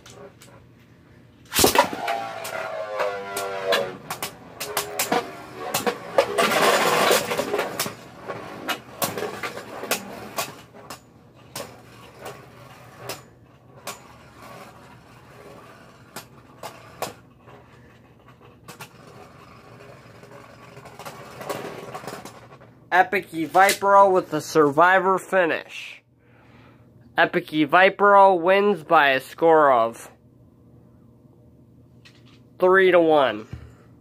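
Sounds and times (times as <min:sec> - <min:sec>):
spinning tops whirring: 0:01.5 - 0:17.8.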